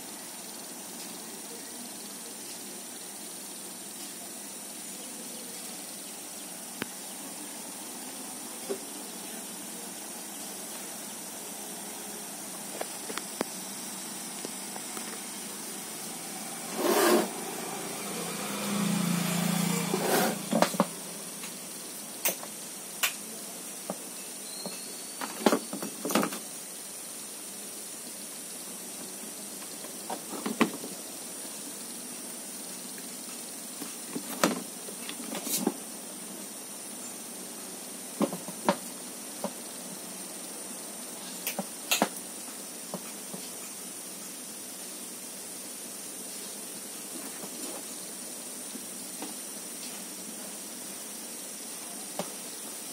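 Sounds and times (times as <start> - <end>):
steady background hiss: 0.0 - 52.9
rustling noises: 33.2 - 35.8.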